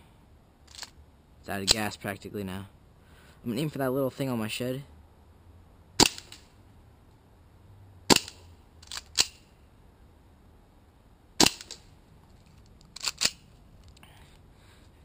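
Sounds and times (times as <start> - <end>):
pistol shots: 6.0 - 6.4, 8.1 - 8.4, 11.4 - 11.8.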